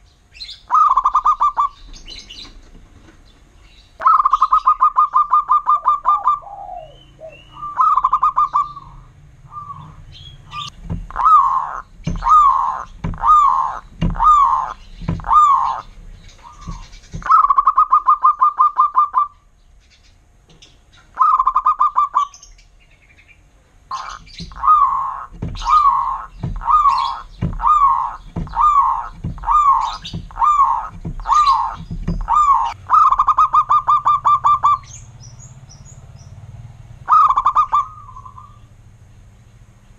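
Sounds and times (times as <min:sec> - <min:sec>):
dove trilled cooing: 0:00.4 - 0:02.6, 0:04.0 - 0:19.5, 0:21.1 - 0:22.5, 0:23.9 - 0:35.2, 0:37.0 - 0:38.7
dove coo notes: 0:00.6 - 0:02.6, 0:04.0 - 0:19.5, 0:21.1 - 0:22.5, 0:23.9 - 0:35.1, 0:37.0 - 0:38.7.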